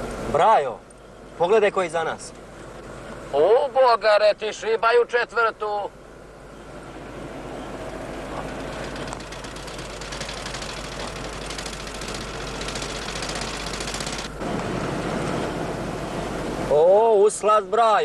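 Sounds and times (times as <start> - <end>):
engine and road rumble inside car: 5.9 - 17.3
motorcycle engine rattle: 8.2 - 14.4.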